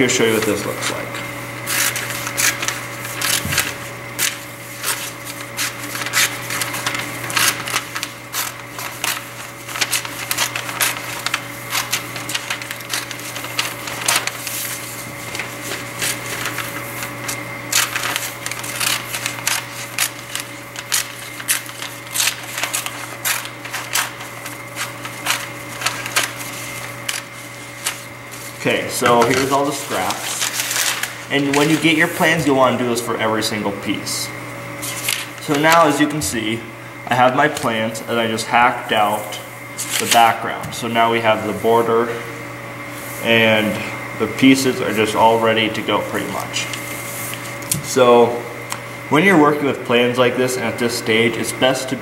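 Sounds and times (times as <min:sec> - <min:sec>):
steady hum: 0:00.0 - 0:52.0
scissors snipping paper: 0:01.7 - 0:28.1, 0:29.0 - 0:32.1.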